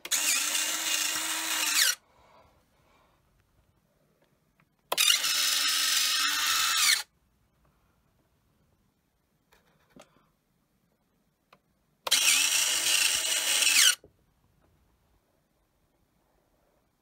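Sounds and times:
small electric motor whining: 0.0 - 2.0, 4.9 - 7.1, 12.1 - 14.0.

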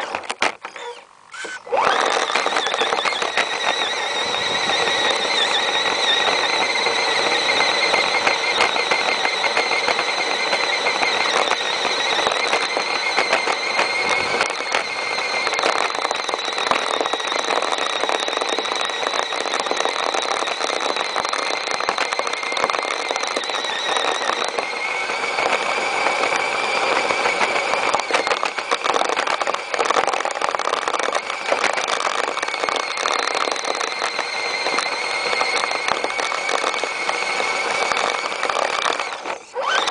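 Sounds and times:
electric motor whining: 0.0 - 39.9
dense crackle of snow: 2.0 - 39.9.

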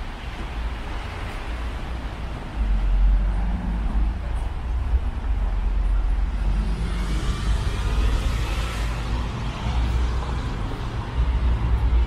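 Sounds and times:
traffic rumble: 0.0 - 12.0
vehicle passing by: 6.3 - 12.0.

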